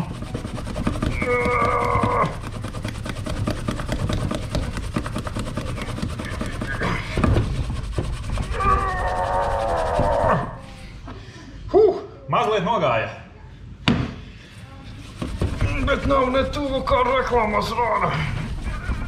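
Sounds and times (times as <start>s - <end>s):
scrubbing inside steel pot: 0.0s - 11.0s, 14.8s - 19.0s.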